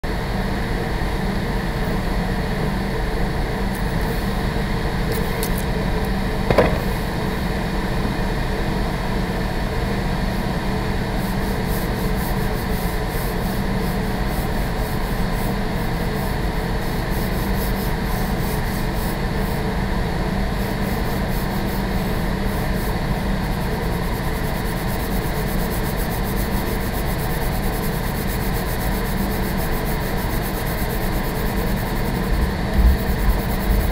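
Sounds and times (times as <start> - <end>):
ventilation hum: 0.0 - 33.9
single knock: 6.5 - 7.0
pencil scratching on paper: 24.2 - 33.9.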